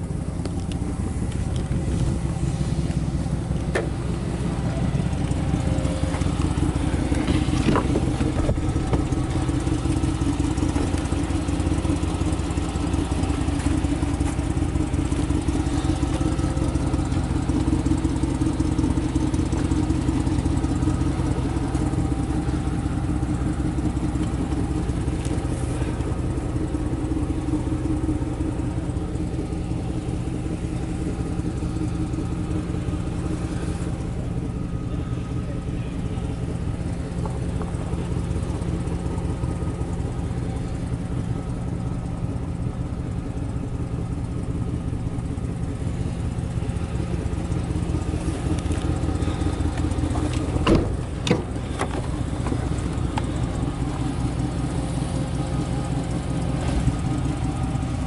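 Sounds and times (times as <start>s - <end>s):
vehicle engine idling: 0.0s - 58.0s.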